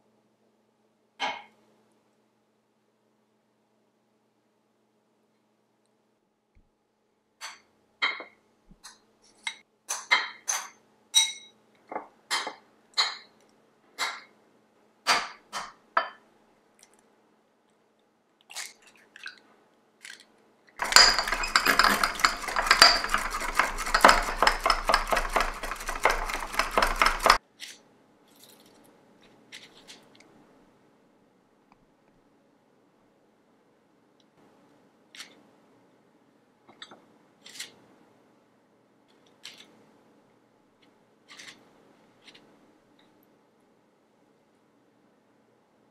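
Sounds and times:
egg beaten in ceramic bowl: 20.8s - 27.4s
utensil clinking glass bowl: 20.8s - 27.4s
egg cracking taps: 22.1s - 27.4s.

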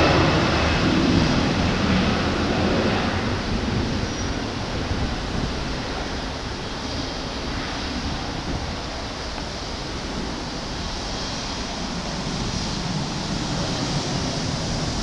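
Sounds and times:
distant jet airliner taking off: 0.0s - 15.0s.

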